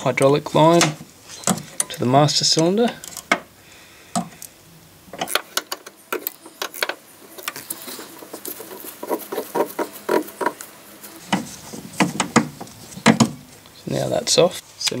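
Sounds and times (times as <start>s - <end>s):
spanner clicking and scraping: 4.1s - 13.3s.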